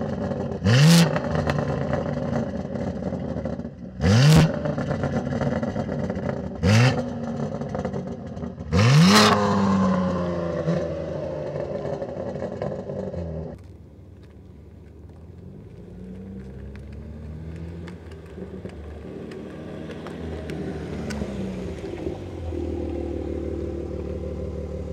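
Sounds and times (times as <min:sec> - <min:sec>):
car engine idling with throttle blips: 0:17.8 - 0:24.9.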